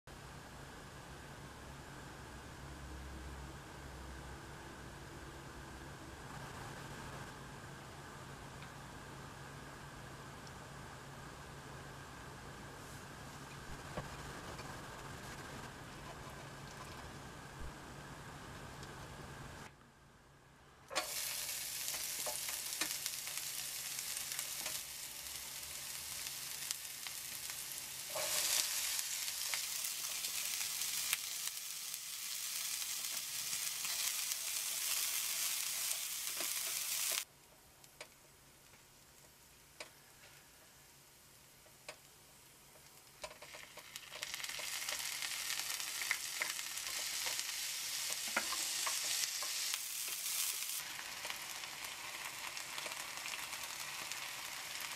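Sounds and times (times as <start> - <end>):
vegetables sizzling in frying pan: 20.9 - 37.3, 42.9 - 54.9.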